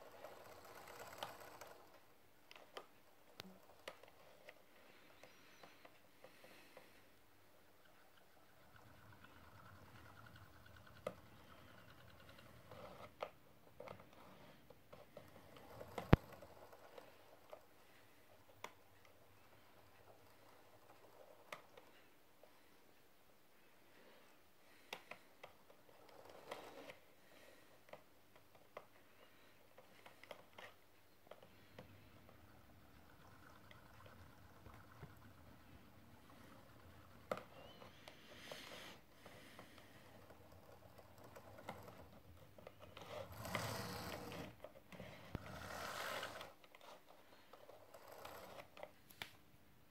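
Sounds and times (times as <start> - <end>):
model train motor whirring: 0.0 - 2.0, 43.0 - 44.6, 45.3 - 46.6, 47.9 - 48.6
small clicks: 0.1 - 7.0.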